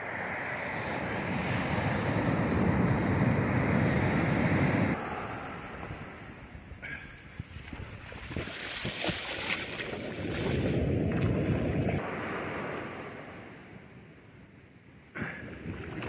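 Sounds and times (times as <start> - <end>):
surf washing over sand: 0.0 - 6.5, 7.4 - 13.9
wind buffeting microphone: 0.0 - 12.1.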